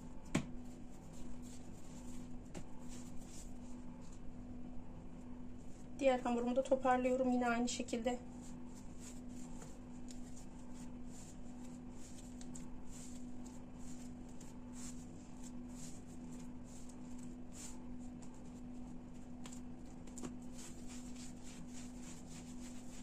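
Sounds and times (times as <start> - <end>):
hands rustling bread dough: 0.0 - 4.4, 8.0 - 23.0
steady low hum: 0.0 - 23.0.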